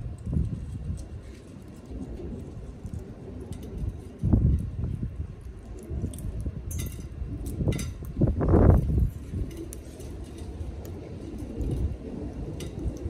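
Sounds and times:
low rumbling bumps: 0.0s - 13.0s.

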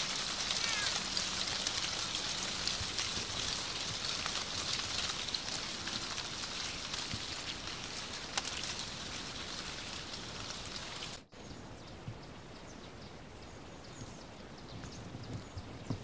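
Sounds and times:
cats walking on dry leaves: 0.0s - 11.4s
leaves rustling: 0.0s - 16.0s.

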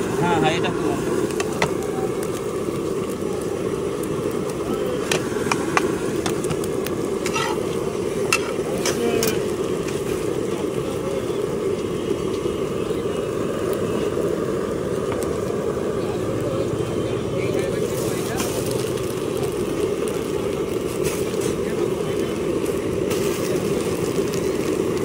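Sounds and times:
knife and spatula scraping pan: 7.2s - 9.4s.

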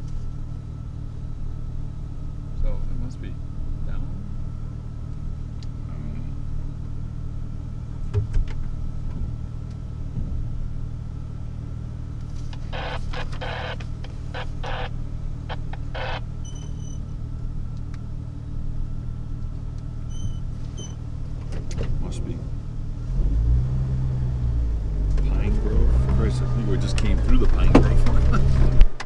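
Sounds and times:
engine droning low: 0.0s - 29.0s
short scratchy noises: 12.3s - 17.0s.

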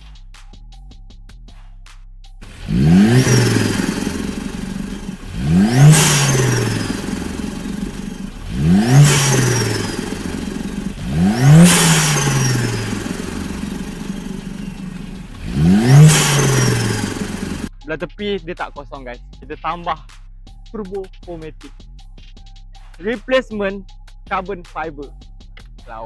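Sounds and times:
car engine revving: 2.4s - 17.7s
high turbo whistle: 2.4s - 17.7s.

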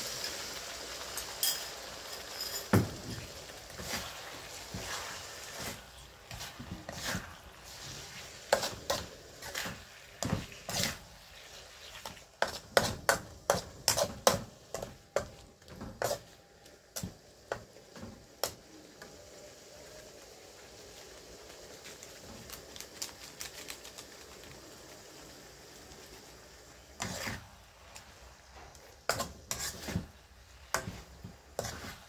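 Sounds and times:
metal spatula scraping a wok: 1.4s - 17.2s, 26.8s - 32.0s.

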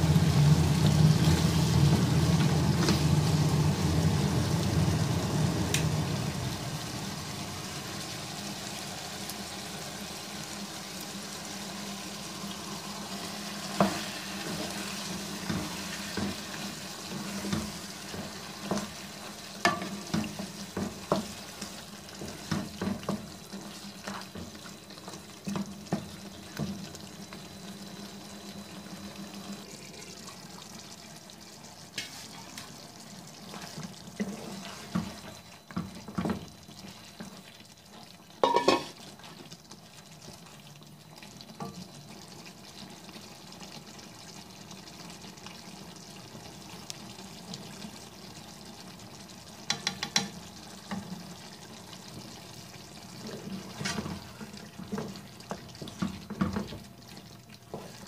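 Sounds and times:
meat sizzling in a pan: 0.0s - 58.0s
spatula knocking and scraping pan: 15.4s - 19.0s, 19.6s - 24.6s, 38.4s - 39.0s, 49.7s - 50.4s.

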